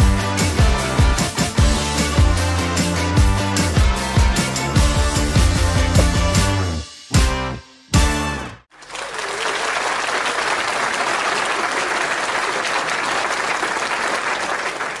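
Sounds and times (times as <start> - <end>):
crowd applause: 8.7 - 15.0.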